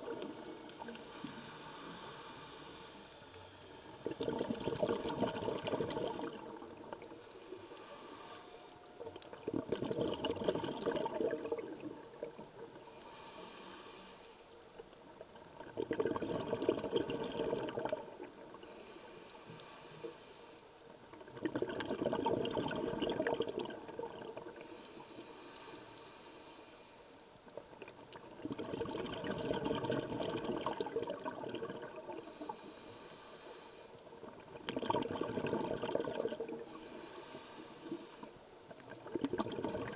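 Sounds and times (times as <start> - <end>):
bubbling exhaled air: 0.0 - 2.7, 3.7 - 8.3, 8.9 - 14.1, 15.2 - 18.9, 21.2 - 25.5, 27.7 - 39.9
regulator inhalation hiss: 0.2 - 4.2, 6.3 - 9.2, 12.7 - 14.6, 18.6 - 20.9, 24.5 - 27.2, 32.1 - 34.3, 36.5 - 38.5.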